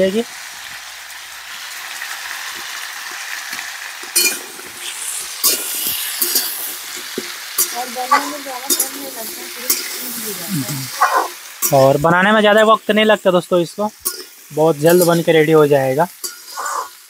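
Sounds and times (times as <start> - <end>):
food sizzling in hot oil: 0.0 - 17.0
spatula scraping a pan: 4.2 - 10.1, 16.2 - 17.0.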